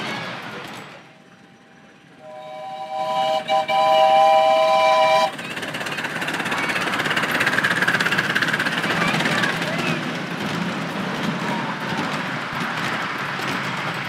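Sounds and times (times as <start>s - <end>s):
train running past: 0.0s - 14.0s
steam locomotive whistle: 2.2s - 5.6s.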